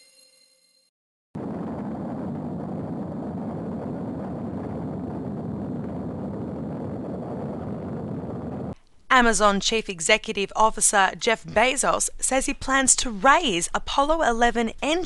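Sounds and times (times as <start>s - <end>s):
deep rumble of rocket engines: 1.4s - 8.8s.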